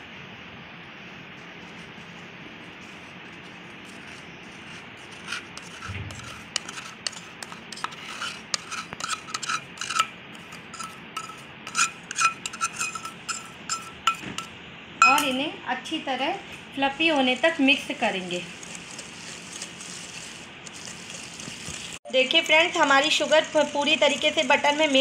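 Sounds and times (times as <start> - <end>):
spoon scraping and clinking bowl: 2.8 - 15.4, 18.4 - 22.0.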